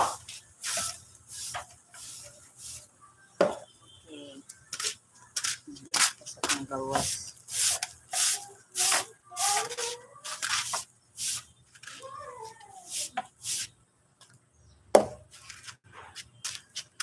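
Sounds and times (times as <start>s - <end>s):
broom sweeping concrete: 0.0s - 2.9s, 4.8s - 13.8s.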